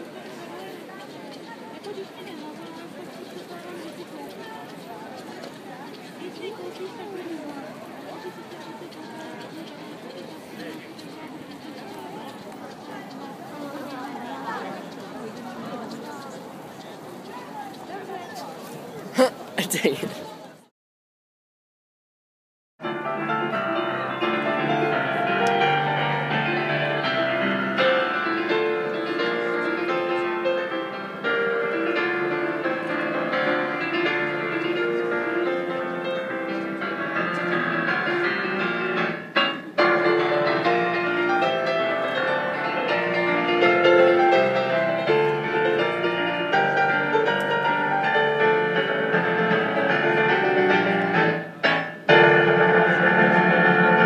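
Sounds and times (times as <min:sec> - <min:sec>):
digital piano melody and chords: 0:22.8 - 0:54.0.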